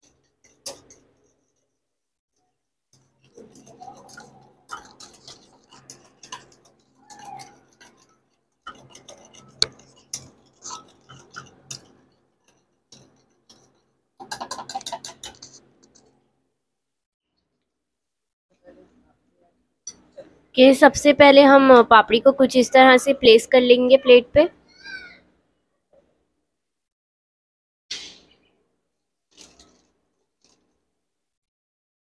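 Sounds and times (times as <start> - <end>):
utensil scraping a bowl: 3.1 - 16.1.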